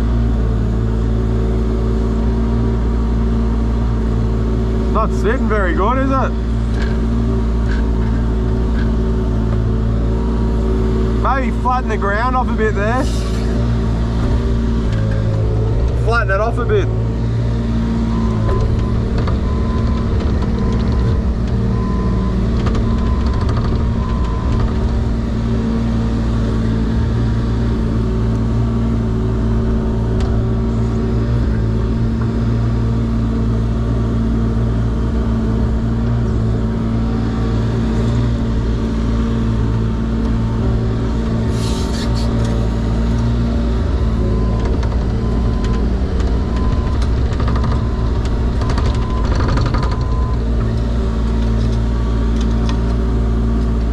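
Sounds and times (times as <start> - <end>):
excavator diesel engine running: 0.0 - 53.9
brief hissing: 41.5 - 42.4.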